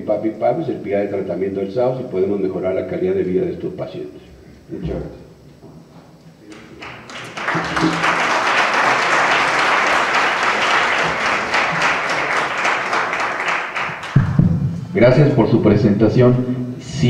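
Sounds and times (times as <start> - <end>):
audience applauding: 6.5 - 14.3.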